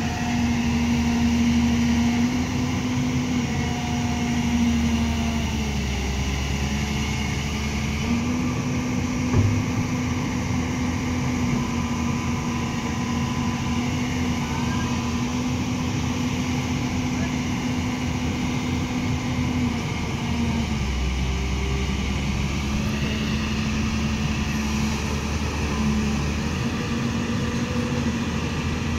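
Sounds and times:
excavator engine and hydraulics humming: 0.0 - 28.9
short knock: 9.3 - 9.8.

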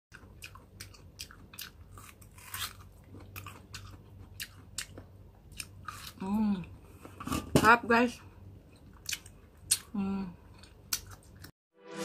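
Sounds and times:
crisp crunches of chewing mango: 0.2 - 6.3.

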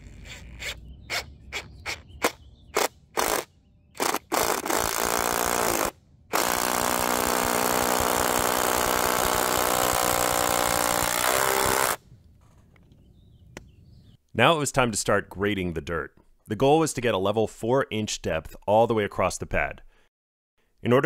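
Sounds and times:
cordless drill boring into wood: 2.8 - 12.0.

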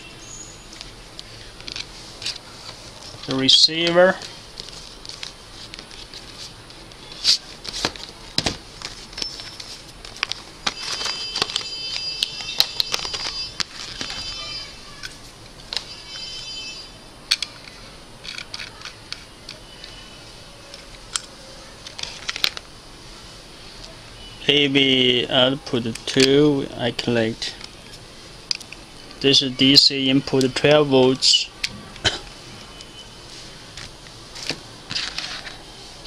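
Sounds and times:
packaging rustling and crinkling: 4.1 - 16.0, 20.7 - 22.8, 33.3 - 36.0.

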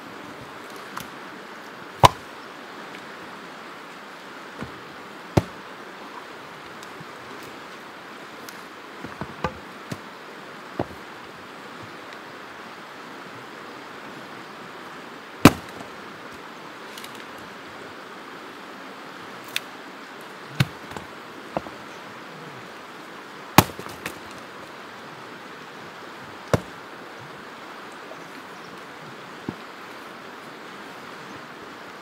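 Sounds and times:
axe splitting firewood: 2.0 - 2.3, 5.4 - 5.6, 9.0 - 10.1, 10.8 - 11.1, 15.4 - 15.9, 20.6 - 21.7, 23.6 - 24.4, 26.4 - 26.8.

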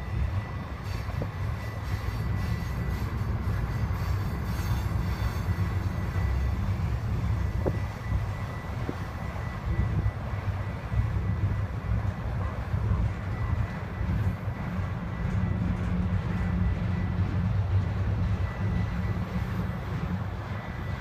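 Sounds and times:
high-pitched wheel squeal: 0.0 - 9.8
train wheels rumbling on rails: 0.0 - 21.0.

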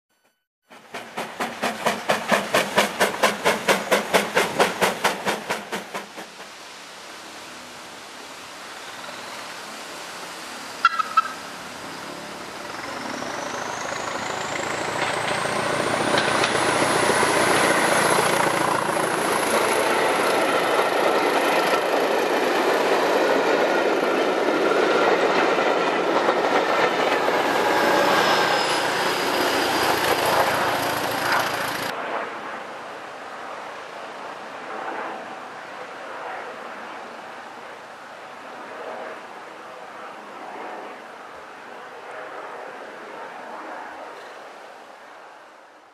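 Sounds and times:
train engine with high whine: 0.7 - 32.0
wheels clattering over rail joints: 14.3 - 17.9.

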